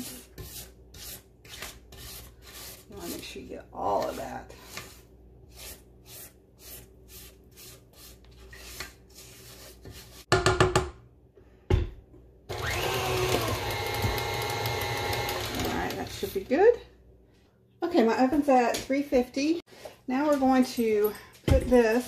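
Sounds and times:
spatula scraping metal bowl: 0:00.0 - 0:10.3
stand mixer motor running: 0:12.5 - 0:16.1.

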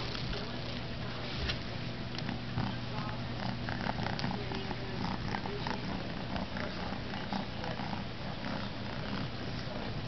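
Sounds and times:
steady low hum: 0:00.0 - 0:10.0
kitten purring: 0:02.2 - 0:10.0.

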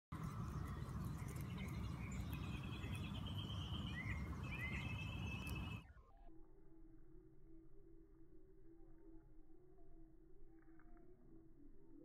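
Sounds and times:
low background rumble: 0:00.2 - 0:05.8
bird calling: 0:00.2 - 0:05.9
short bird chirps: 0:00.2 - 0:06.3.

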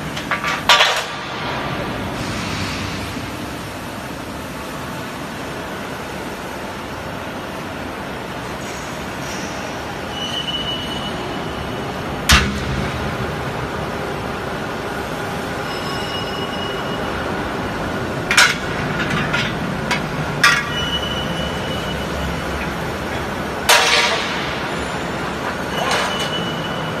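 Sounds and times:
roll forming machine running: 0:11.2 - 0:27.0.

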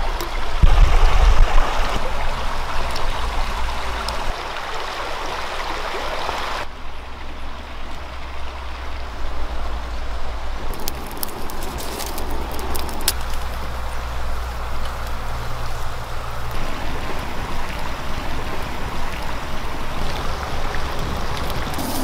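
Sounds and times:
flowing stream: 0:00.0 - 0:22.0
low rumble: 0:00.4 - 0:04.3
wood fire crackling: 0:10.6 - 0:22.0.

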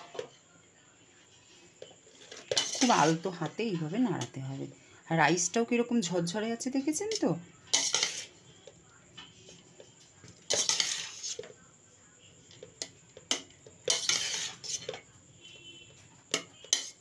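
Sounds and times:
utensil scraping pan: 0:01.6 - 0:04.8, 0:07.0 - 0:08.4, 0:09.2 - 0:11.5, 0:12.6 - 0:15.1, 0:16.3 - 0:17.0.

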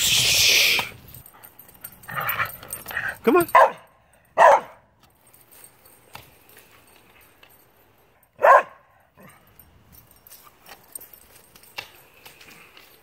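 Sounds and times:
small dog barking: 0:03.5 - 0:03.8, 0:04.4 - 0:04.8, 0:08.4 - 0:08.8.

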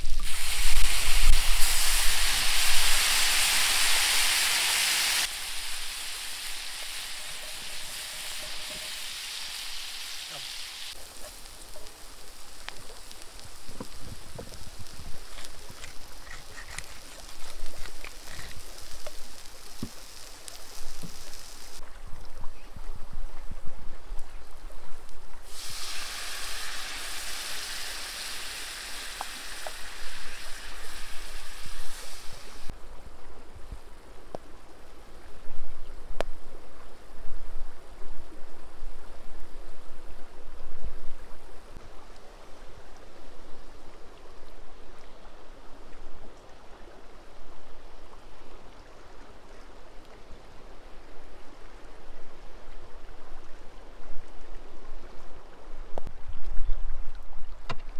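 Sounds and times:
liquid sizzling in hot skillet: 0:00.0 - 0:21.8, 0:25.4 - 0:32.7.

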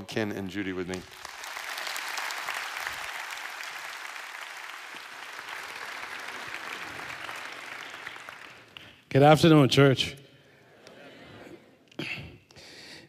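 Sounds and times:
congregation clapping: 0:00.5 - 0:09.3.

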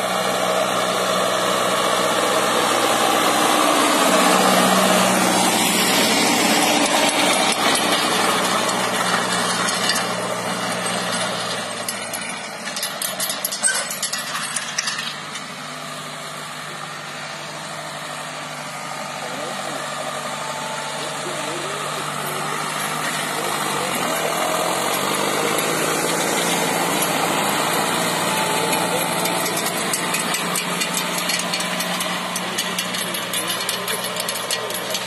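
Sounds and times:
tractor diesel engine running: 0:00.0 - 0:35.0
harrow clattering rattles: 0:03.5 - 0:15.6, 0:21.0 - 0:35.0.

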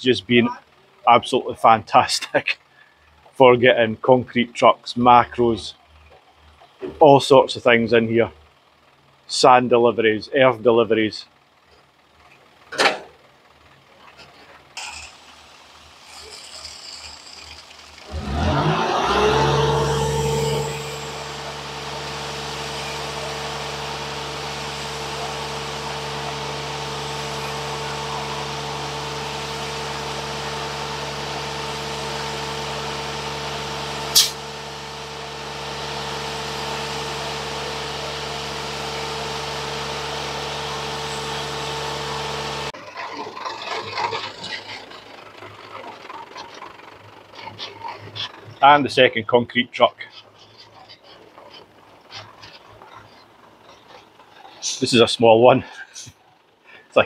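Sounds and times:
diesel truck engine running: 0:00.0 - 0:57.0
sharp click: 0:34.2 - 0:34.4.

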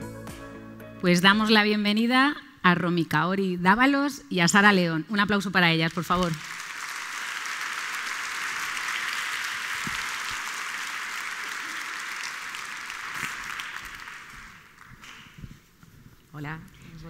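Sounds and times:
audience applauding: 0:06.2 - 0:15.4.

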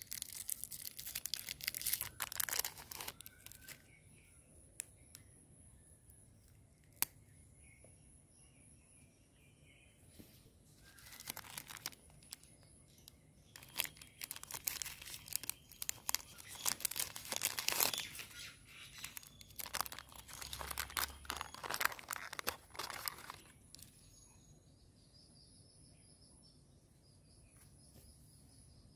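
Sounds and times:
wrapper and foil crinkling: 0:00.0 - 0:03.8, 0:10.8 - 0:12.5, 0:13.5 - 0:23.9.

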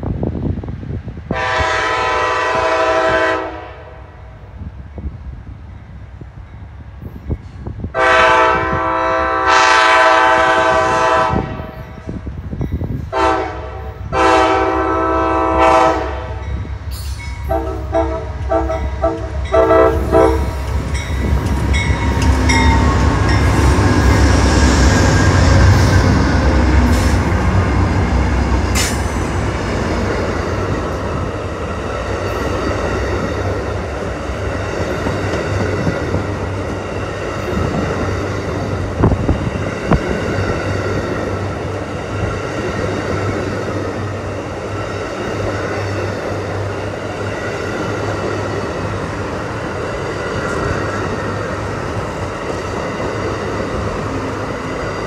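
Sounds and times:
diesel locomotive engines passing: 0:00.0 - 0:55.0
train air horn blasts: 0:01.3 - 0:04.1, 0:08.0 - 0:12.0, 0:13.1 - 0:16.6, 0:17.4 - 0:20.7
train wheels clattering on rails: 0:16.5 - 0:55.0.

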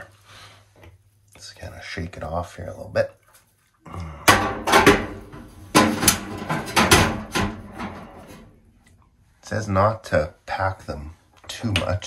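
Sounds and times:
stones knocking on metal heater: 0:04.3 - 0:08.2.

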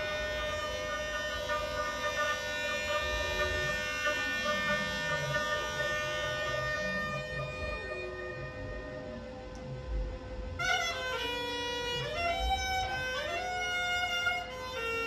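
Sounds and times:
low wavering tone: 0:00.0 - 0:15.0
woodwind and electronics chord: 0:00.0 - 0:15.0.

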